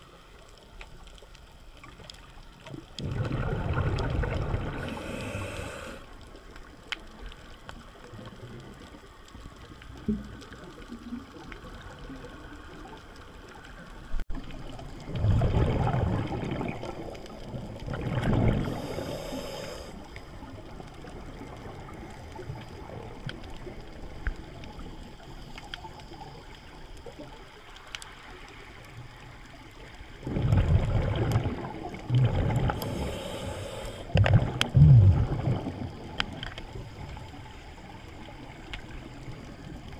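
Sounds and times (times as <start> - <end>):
quiet steady hiss: 0.0 - 39.9
air bubbles from regulator: 2.7 - 6.0, 14.5 - 19.7, 30.2 - 37.2
inhalation hiss: 4.7 - 6.2, 18.6 - 20.2, 32.7 - 34.2.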